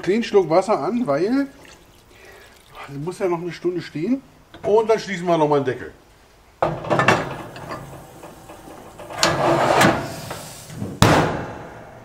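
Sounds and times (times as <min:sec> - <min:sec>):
cast iron lid clinking and scraping: 0:06.6 - 0:09.9
loud metal clunk: 0:06.6 - 0:10.2, 0:10.8 - 0:12.0.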